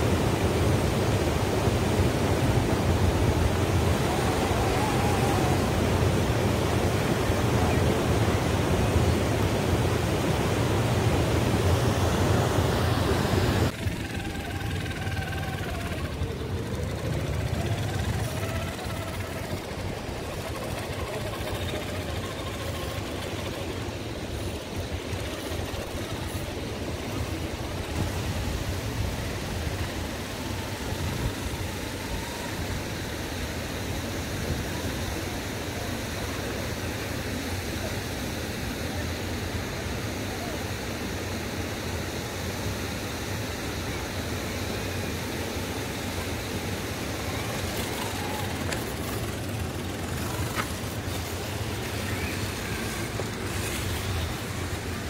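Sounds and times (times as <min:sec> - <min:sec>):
steady rushing noise: 0:00.0 - 0:55.0
electric motor whining: 0:13.7 - 0:28.2.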